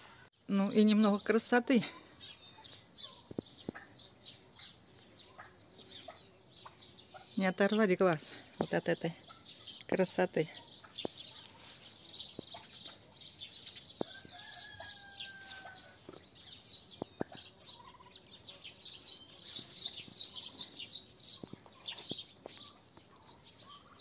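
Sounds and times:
small birds chirping: 0.0 - 24.0
rooster crowing: 14.0 - 16.0.

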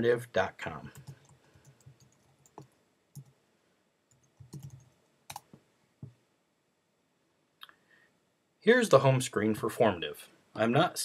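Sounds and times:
computer keyboard keystrokes: 4.1 - 5.5.

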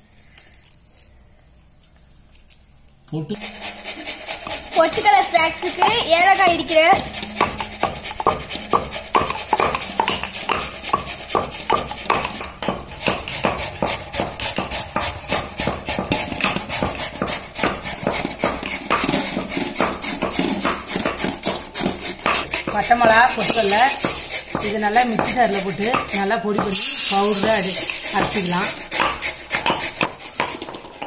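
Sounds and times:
grating on a steel box grater: 3.4 - 31.0
stone pestle pounding in mortar: 3.4 - 31.0.

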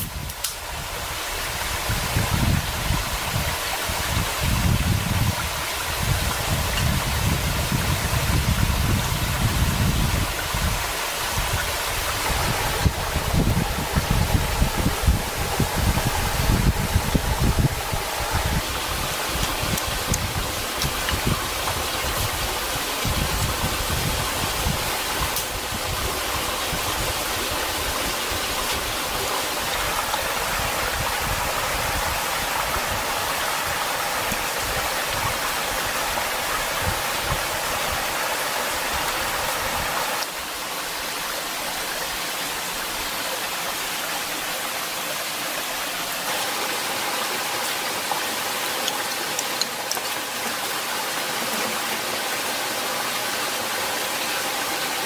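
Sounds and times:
steady rushing noise: 0.0 - 41.0
low rumbling on microphone: 6.0 - 28.2.

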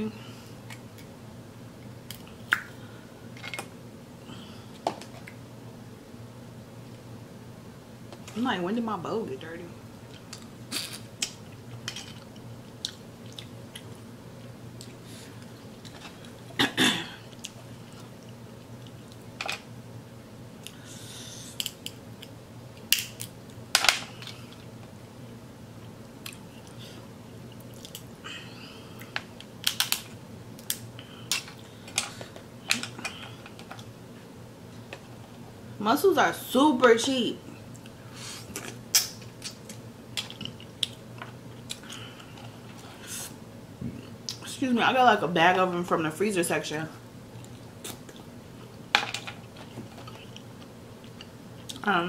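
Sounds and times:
low steady hum: 0.0 - 52.0
chewing: 10.8 - 15.0, 39.4 - 42.4.

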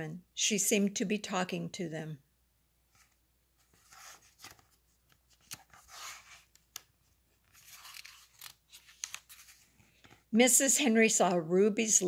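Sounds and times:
paper page rustling: 2.9 - 10.2
sharp paper ticks: 7.5 - 9.4.

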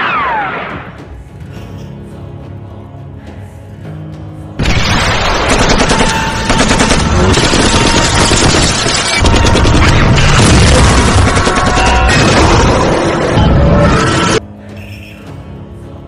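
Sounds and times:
rapid gunfire: 4.6 - 13.3.

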